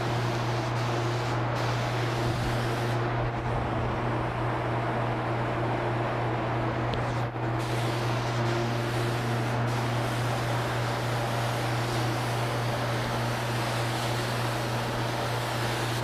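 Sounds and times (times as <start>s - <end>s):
spray gun hissing: 0.0s - 3.1s, 7.6s - 16.0s
air supply hum: 0.0s - 16.0s.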